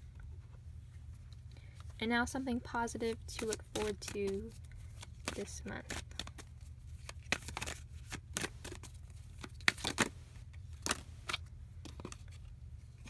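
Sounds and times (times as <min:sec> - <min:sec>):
low steady hum: 0:00.0 - 0:13.0
cards being shuffled: 0:03.0 - 0:13.0.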